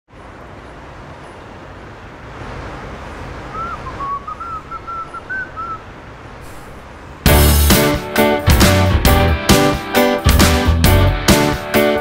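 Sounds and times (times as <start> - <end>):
man whistling a tune: 3.5 - 5.8.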